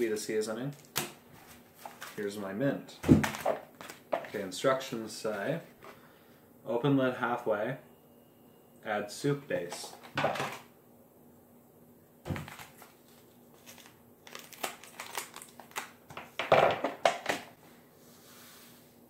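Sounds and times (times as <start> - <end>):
plastic packet crinkling: 0.7 - 2.4, 3.2 - 4.5, 12.3 - 16.4.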